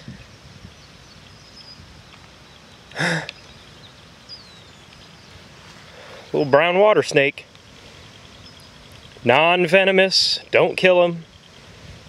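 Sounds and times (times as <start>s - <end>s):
outdoor background noise: 0.0s - 12.0s
person humming briefly: 3.0s - 3.3s.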